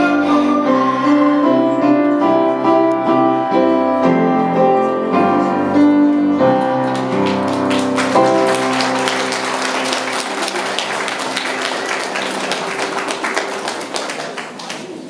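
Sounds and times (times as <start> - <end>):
audience applause: 6.8 - 15.0.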